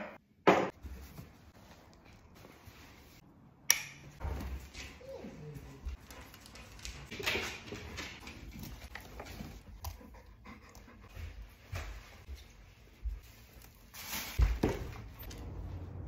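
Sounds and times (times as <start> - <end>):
dogs panting: 5.5 - 12.2.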